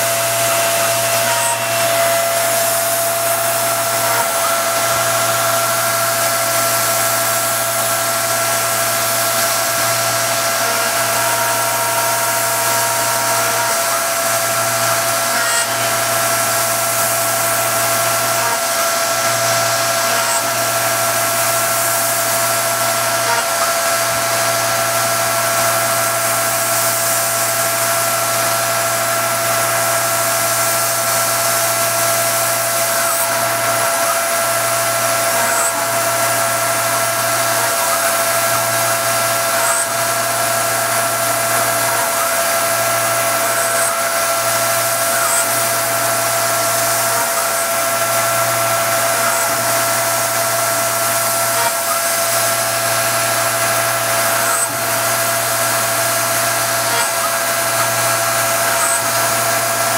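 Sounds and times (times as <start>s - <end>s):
mill spindle whine: 0.0s - 59.9s.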